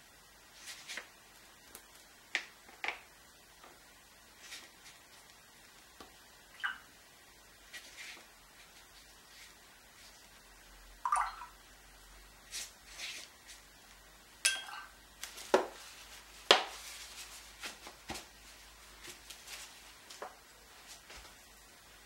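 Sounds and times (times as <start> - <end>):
water dripping: 6.0 - 7.0, 11.0 - 11.7, 14.4 - 15.1
paintbrush clinking on water container: 14.5 - 15.0.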